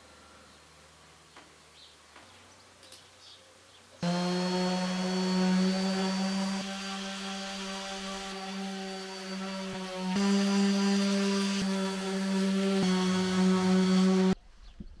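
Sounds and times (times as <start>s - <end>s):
orbital sander running: 4.0s - 14.4s.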